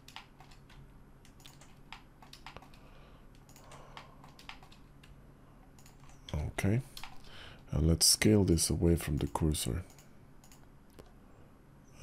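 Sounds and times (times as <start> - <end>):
keyboard keys clicking: 0.0 - 2.8, 3.4 - 5.2.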